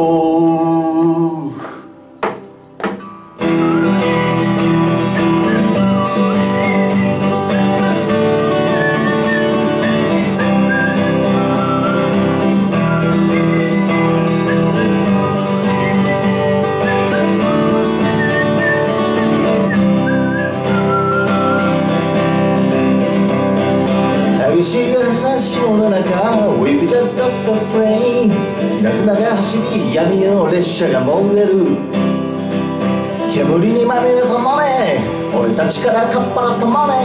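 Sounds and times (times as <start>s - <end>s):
acoustic guitar strumming: 0.0s - 37.0s
thin wavering high melody: 3.4s - 21.9s.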